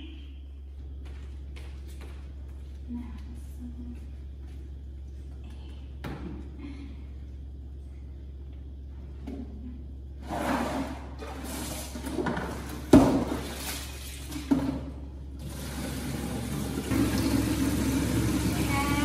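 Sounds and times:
water splashing in plastic basin: 12.8s - 14.7s
tap water running from hose: 15.4s - 19.0s.

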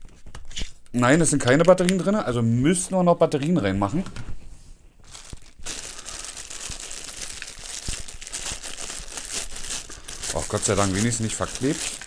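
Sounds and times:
plastic packaging crinkling: 5.0s - 12.0s.

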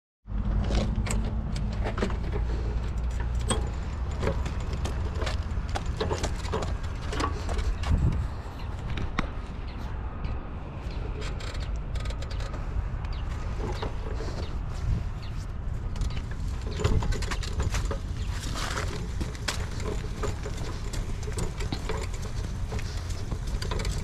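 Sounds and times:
tiller rattling over pavement: 0.6s - 9.3s, 10.9s - 24.0s.

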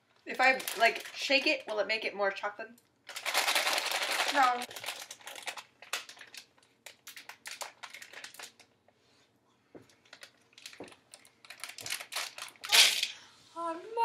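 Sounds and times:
plastic package crinkling: 0.3s - 1.7s, 3.0s - 8.8s, 10.0s - 13.1s.

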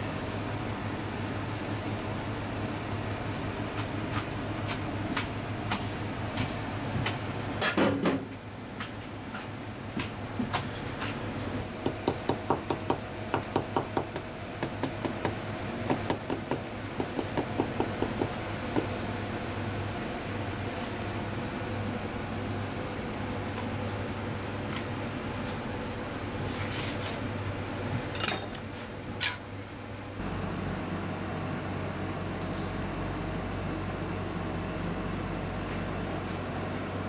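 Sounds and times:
steady low hum: 8.3s - 37.0s
knife chopping on plastic board: 11.8s - 19.0s.

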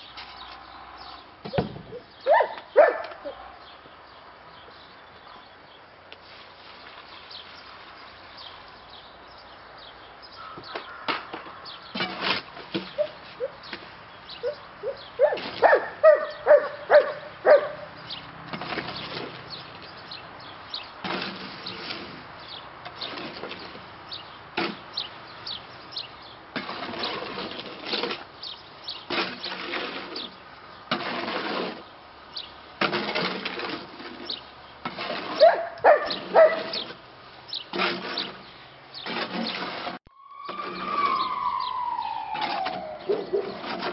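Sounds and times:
dog barking: 2.3s - 3.4s, 14.4s - 17.9s, 35.4s - 36.8s
shovel scraping concrete in wheelbarrow: 11.1s - 40.9s, 42.4s - 43.9s.

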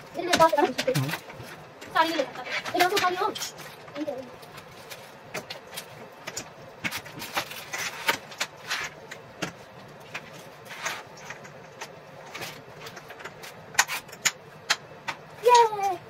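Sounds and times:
panels clicking and knocking: 0.2s - 4.2s.

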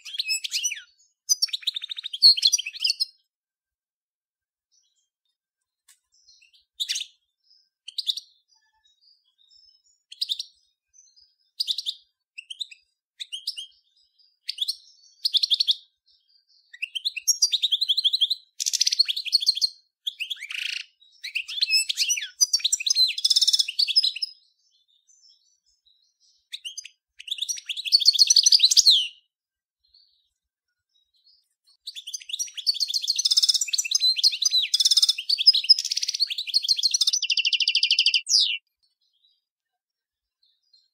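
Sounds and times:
goldfinch singing: 0.0s - 3.3s, 6.1s - 29.3s, 30.9s - 39.5s.

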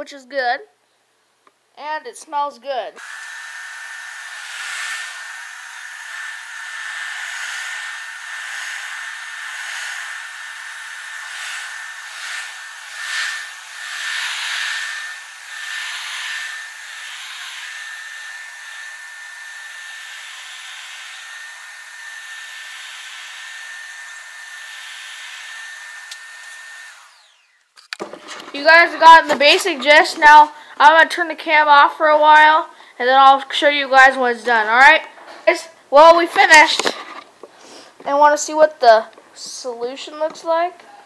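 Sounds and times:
carpet cleaner motor whine: 3.0s - 27.7s.

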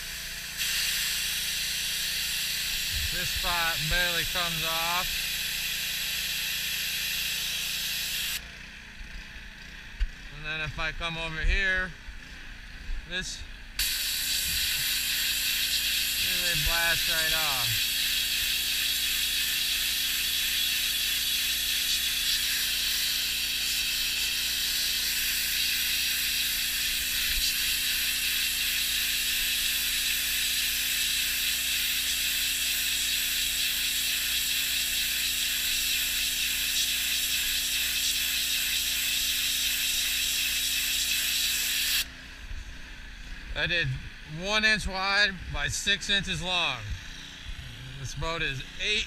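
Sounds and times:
pressure washer spraying: 0.0s - 8.4s, 13.8s - 42.1s
steady low hum: 0.0s - 28.4s, 41.7s - 49.0s.

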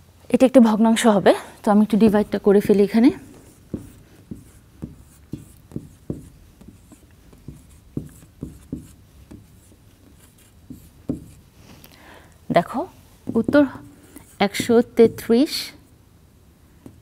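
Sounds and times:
marker writing on whiteboard: 2.1s - 11.6s, 12.8s - 15.5s.

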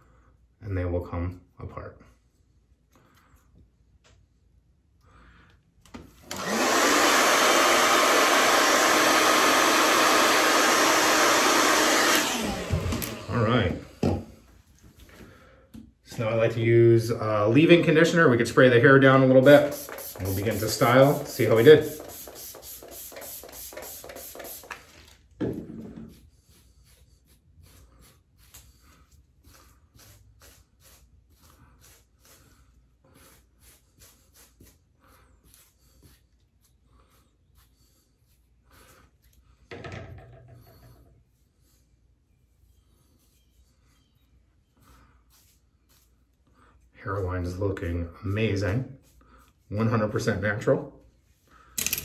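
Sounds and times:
hair dryer blowing: 6.2s - 14.3s, 19.2s - 25.0s
spray bottle spritzing: 19.4s - 25.0s.

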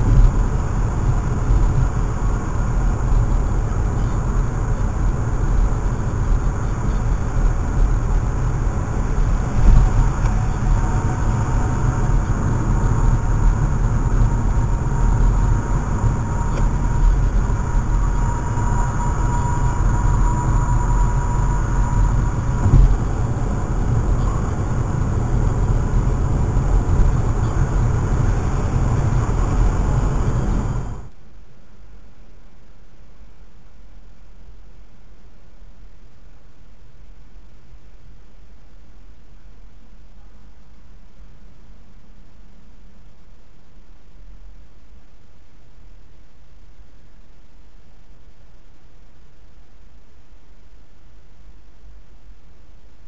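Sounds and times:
car road and engine rumble: 0.0s - 31.2s
thump in car: 22.6s - 23.2s.

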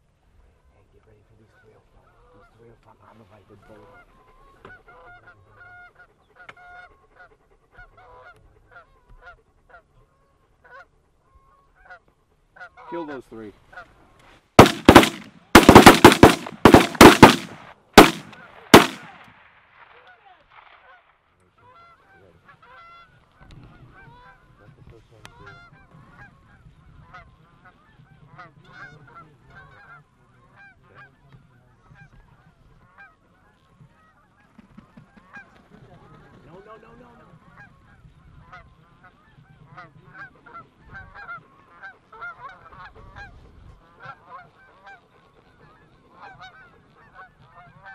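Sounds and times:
geese honking: 14.6s - 19.2s, 32.9s - 47.9s
shotgun shots: 14.6s - 20.0s.

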